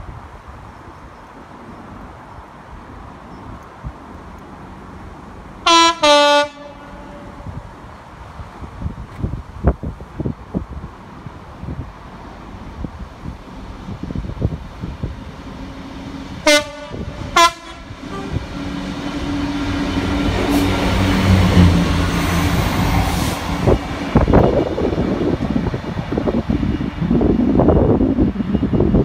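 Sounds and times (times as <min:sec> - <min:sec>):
diesel locomotive engine passing: 0:00.8 - 0:09.1, 0:10.0 - 0:29.0
locomotive horn blasts: 0:05.6 - 0:07.6, 0:16.4 - 0:18.8.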